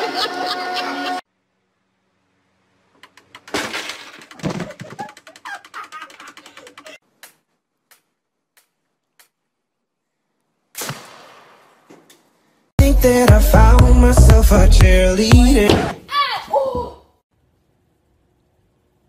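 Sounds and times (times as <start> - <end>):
plastic pieces clattering: 3.3 - 5.4
sparse clicks: 4.2 - 7.0.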